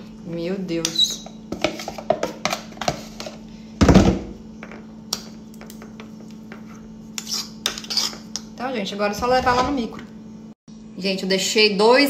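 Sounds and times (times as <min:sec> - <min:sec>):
metal spoon scraping glass bowl: 0:07.1 - 0:08.5.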